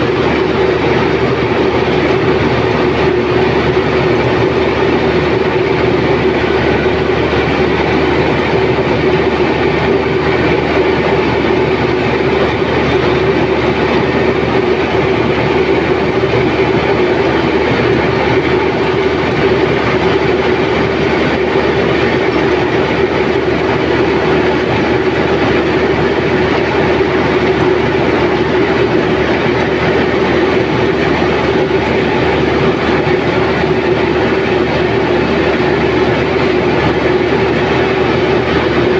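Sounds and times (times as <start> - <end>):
combine harvester running: 0.0 - 38.9.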